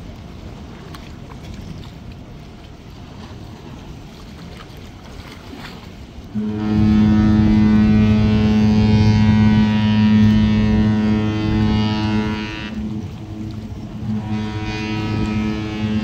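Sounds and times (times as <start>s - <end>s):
low wind noise: 5.8s - 16.0s
ship's horn deep blast: 6.2s - 16.0s.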